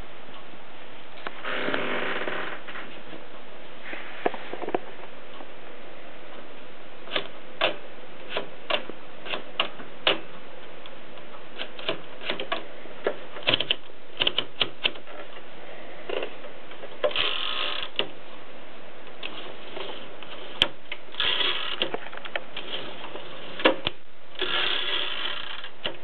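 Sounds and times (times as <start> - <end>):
typewriter mechanism clicks and rattle: 7.1 - 10.2, 11.6 - 12.6, 13.4 - 15.1, 17.0 - 18.1, 20.6 - 22.8, 23.6 - 26.0.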